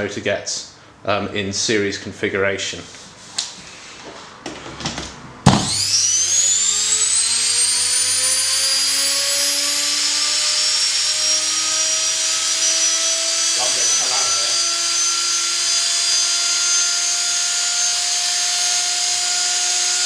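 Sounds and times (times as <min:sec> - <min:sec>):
electric motor whine: 0:05.5 - 0:20.0.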